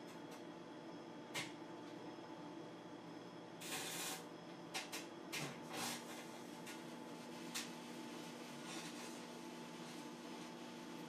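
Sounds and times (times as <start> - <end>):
microwave oven humming: 0.0 - 11.0
short bursts of arcing noise: 3.6 - 4.3.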